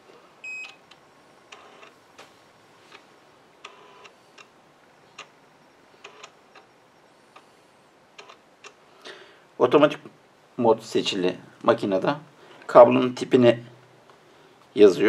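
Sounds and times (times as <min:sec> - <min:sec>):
faint machine ticks and buzzes: 0:00.0 - 0:15.0.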